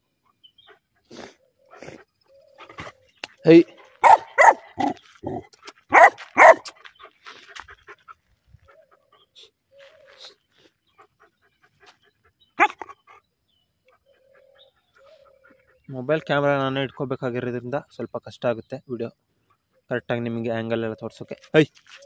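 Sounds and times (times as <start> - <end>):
dog barking: 4.0 - 6.8, 12.6 - 13.0.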